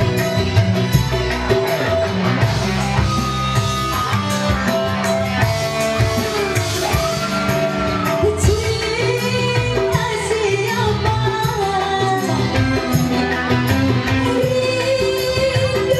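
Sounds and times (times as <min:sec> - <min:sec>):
hand drums: 0:00.0 - 0:15.9
keyboard melody: 0:00.0 - 0:15.9.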